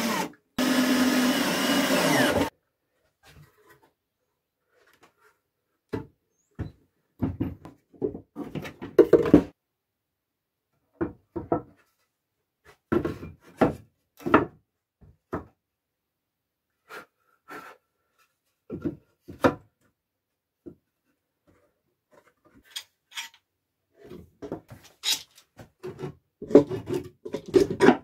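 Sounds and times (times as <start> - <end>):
wooden boards knocking and scraping: 7.2 - 9.6, 11.0 - 11.8.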